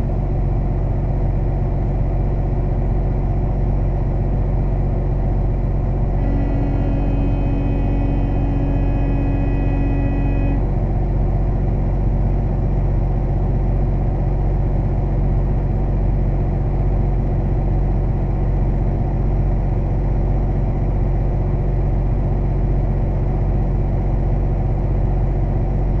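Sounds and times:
diesel truck engine idling: 0.0s - 26.0s
steady pitched tone: 6.2s - 10.6s.

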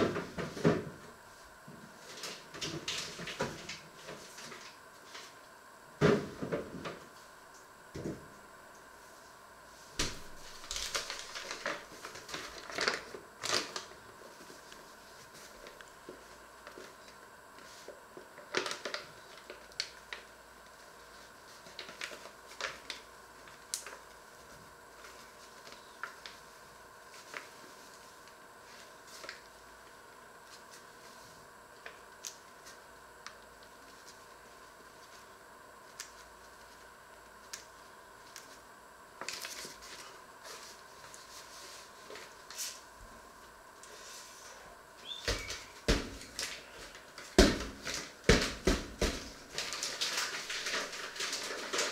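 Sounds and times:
faint steady hum: 0.0s - 51.9s
paper bag crinkling: 10.0s - 20.2s, 20.8s - 29.6s, 39.2s - 42.9s, 45.0s - 51.9s.

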